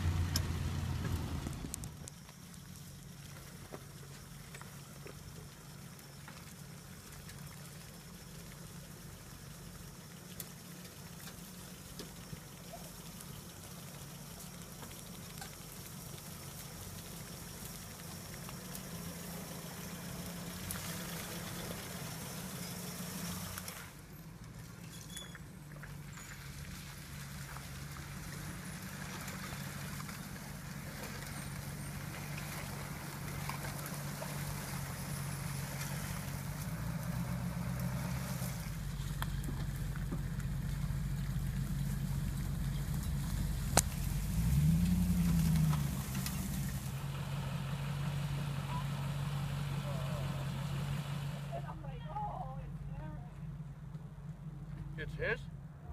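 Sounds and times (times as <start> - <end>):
off-road engines running: 0.0 - 55.9
water trickling: 2.1 - 24.2.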